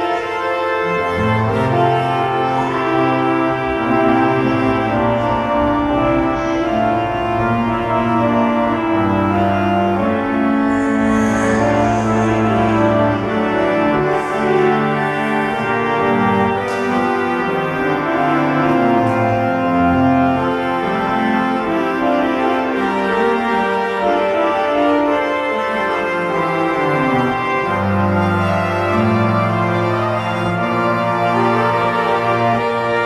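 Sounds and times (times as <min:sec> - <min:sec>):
slow organ chords: 0:00.0 - 0:33.0
low bass line: 0:01.2 - 0:21.0.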